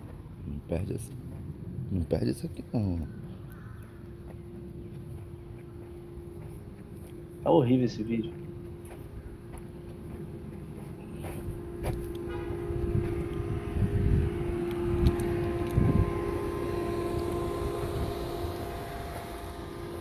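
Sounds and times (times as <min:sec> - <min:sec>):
steady mechanical hum: 0:00.0 - 0:20.0
low microphone rumbles: 0:08.2 - 0:19.2.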